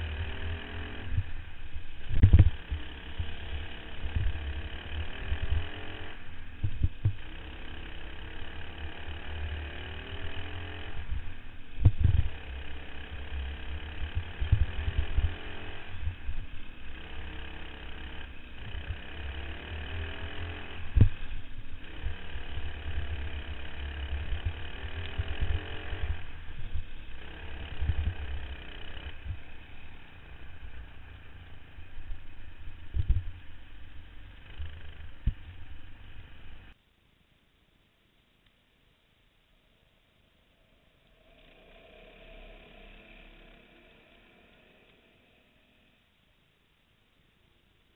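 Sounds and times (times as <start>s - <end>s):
kart engine revving: 0.0s - 36.8s, 41.1s - 45.9s
low rumble: 0.0s - 36.8s.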